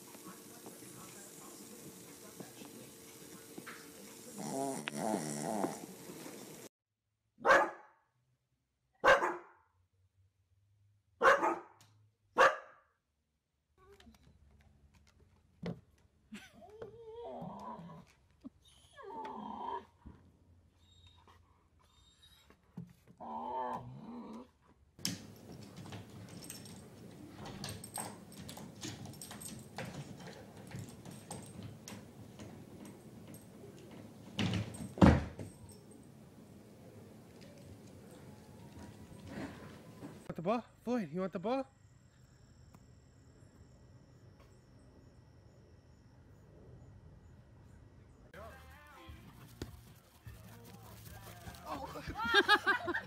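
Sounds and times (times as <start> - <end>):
puppy snoring: 4.2 - 6.5
dog barking: 7.4 - 8.0, 9.0 - 9.6, 11.2 - 11.8, 12.4 - 12.9.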